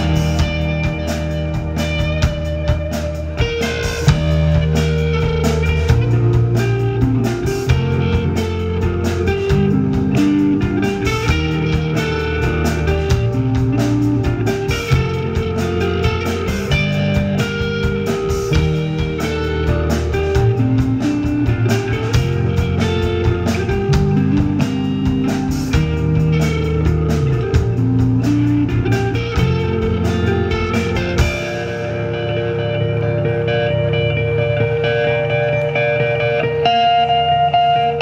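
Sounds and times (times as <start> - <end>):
drum kit with cymbals: 0.0 - 33.4
electric guitar: 0.0 - 38.0.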